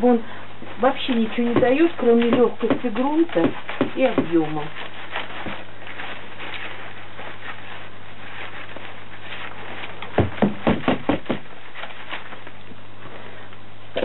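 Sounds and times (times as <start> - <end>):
soil sifting through plastic sieve: 0.0 - 13.5
steady background hiss: 0.0 - 14.0
hard plastic knocks: 10.2 - 11.5.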